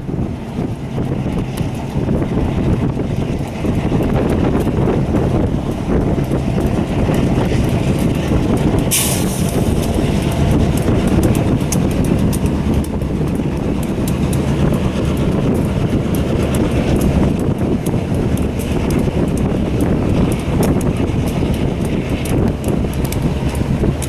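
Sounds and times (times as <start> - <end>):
diesel locomotive engine rumble: 0.0 - 24.0
wheels clicking over rails: 0.0 - 24.0
short hiss: 8.9 - 9.6.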